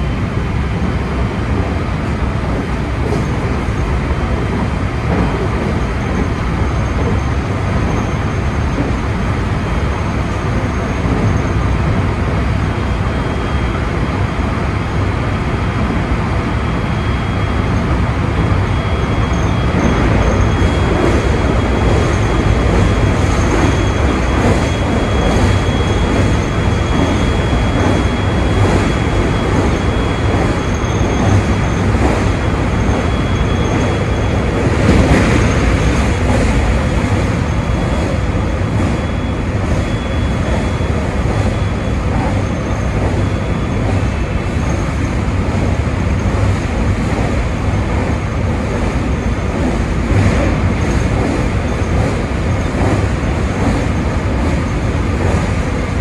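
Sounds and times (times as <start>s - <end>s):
train wheels rumbling on rail: 0.0s - 56.0s
thin high whine: 16.3s - 49.6s.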